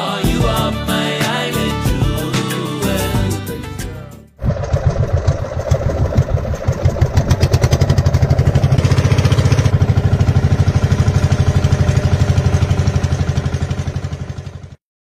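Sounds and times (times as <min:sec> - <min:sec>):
boat engine running: 0:04.3 - 0:14.8.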